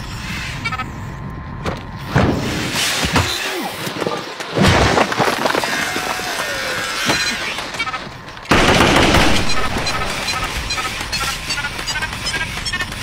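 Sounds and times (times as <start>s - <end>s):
gunshots: 8.5s - 11.9s.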